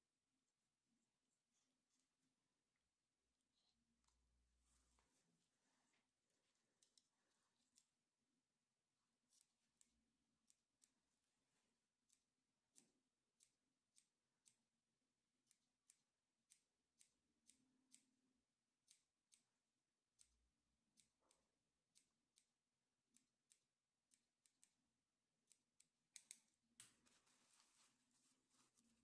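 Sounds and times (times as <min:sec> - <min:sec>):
small scissors snipping hair: 0:09.2 - 0:18.2, 0:18.8 - 0:27.2.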